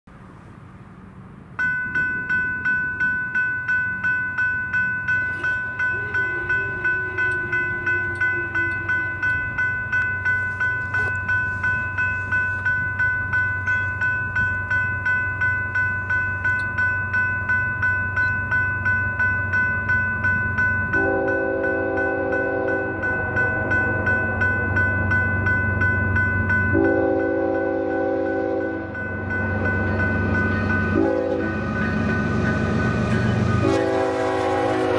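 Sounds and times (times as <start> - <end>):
locomotive rumble: 0.1 - 34.9
railroad crossing bell ringing: 1.0 - 34.9
train horn blasts: 21.0 - 23.0, 26.7 - 29.0, 30.9 - 31.6, 33.6 - 34.9.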